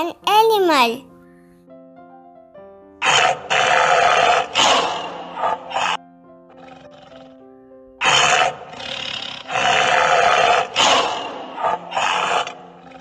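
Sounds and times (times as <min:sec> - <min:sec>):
background music: 0:00.0 - 0:13.0
tiger roaring: 0:03.0 - 0:07.4, 0:08.0 - 0:13.0.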